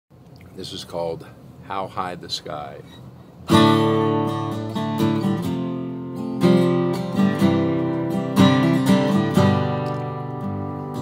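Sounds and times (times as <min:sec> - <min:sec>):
guitar chords strummed: 0:03.5 - 0:11.0.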